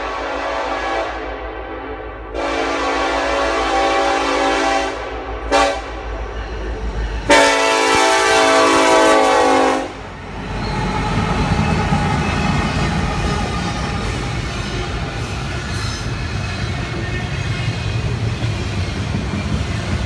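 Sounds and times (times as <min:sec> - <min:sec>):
train air horn blasts: 0:00.0 - 0:06.2, 0:07.2 - 0:10.1
locomotive rumble and rail wheels: 0:00.0 - 0:20.0.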